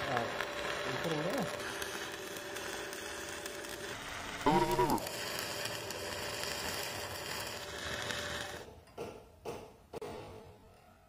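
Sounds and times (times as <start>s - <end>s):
arc welding hiss: 0.0s - 8.7s
brief pitched vocal sound: 4.5s - 5.0s.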